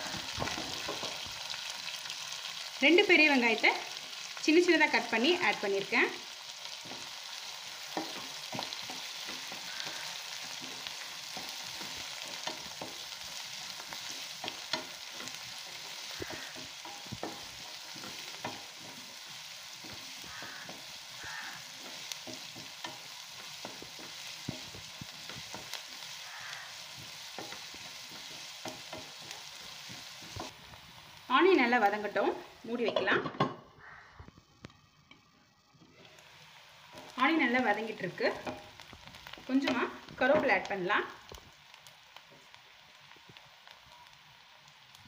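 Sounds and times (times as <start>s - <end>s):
spatula scraping and tapping pan: 0.0s - 1.3s, 6.8s - 30.6s, 32.8s - 33.6s
onions sizzling in hot oil: 0.0s - 45.0s.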